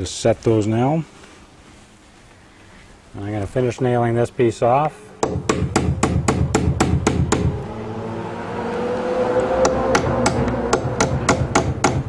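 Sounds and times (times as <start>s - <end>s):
hammer driving nails into wood: 5.2s - 7.5s, 9.6s - 12.0s.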